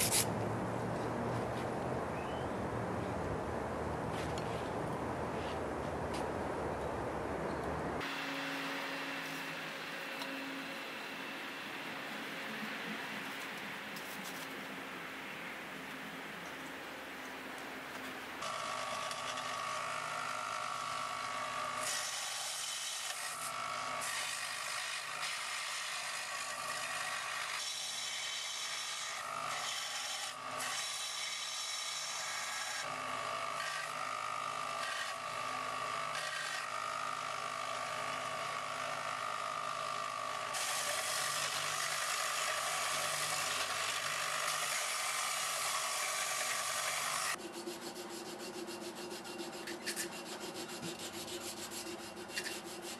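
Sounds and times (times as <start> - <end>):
knife blade grinding on belt: 0.0 - 0.3
belt grinder whine: 18.4 - 47.4.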